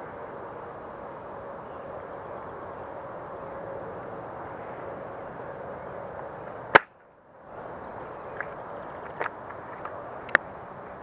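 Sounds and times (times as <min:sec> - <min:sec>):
outdoor woodland noise: 0:00.0 - 0:11.0
airsoft gun shot snap: 0:06.7 - 0:07.0.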